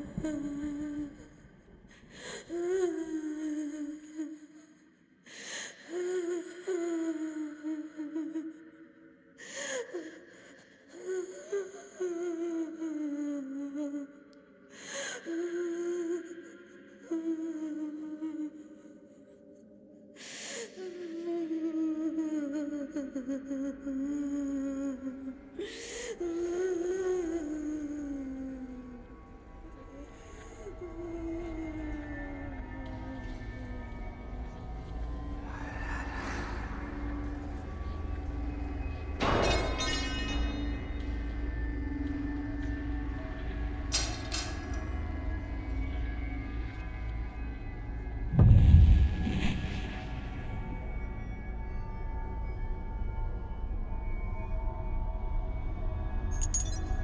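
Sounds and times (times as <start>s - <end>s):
woman humming: 0.0s - 1.4s, 2.5s - 4.4s, 20.8s - 38.8s
person humming slow tune: 0.0s - 4.5s, 5.9s - 8.9s, 9.6s - 14.4s, 15.0s - 19.7s, 20.6s - 48.3s, 56.3s - 56.8s.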